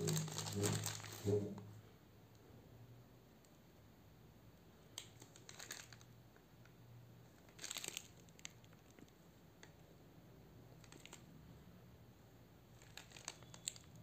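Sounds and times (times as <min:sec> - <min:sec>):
plastic packaging crinkling: 0:00.0 - 0:01.4, 0:05.0 - 0:06.1, 0:07.4 - 0:09.1, 0:10.8 - 0:11.3, 0:12.7 - 0:14.0
light clicks and rustles: 0:12.8 - 0:14.0.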